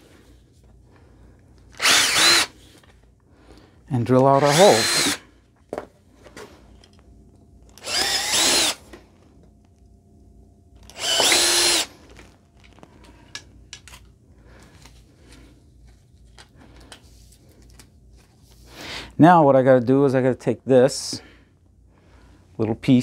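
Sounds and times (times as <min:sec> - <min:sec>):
cordless drill boring: 0:01.8 - 0:02.5, 0:04.4 - 0:05.2, 0:07.7 - 0:08.8, 0:10.8 - 0:11.9.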